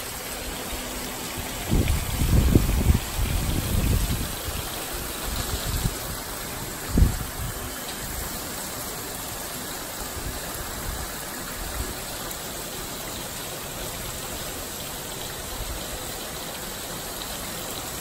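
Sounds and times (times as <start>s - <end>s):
gusting wind: 0.0s - 12.4s
steady heavy rain: 0.0s - 18.0s.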